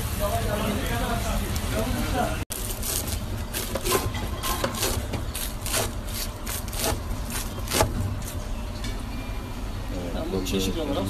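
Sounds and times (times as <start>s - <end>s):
knife crunching through pastry: 2.5s - 8.4s.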